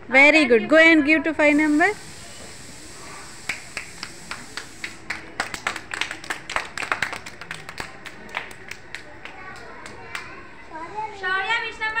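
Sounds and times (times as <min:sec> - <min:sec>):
children clapping: 0:03.4 - 0:10.4.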